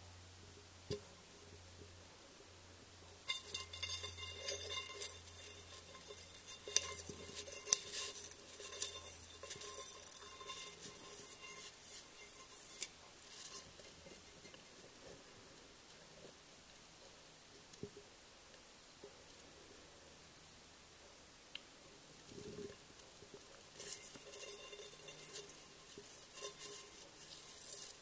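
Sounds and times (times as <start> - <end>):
insect tapping against glass: 3.2 - 12.9.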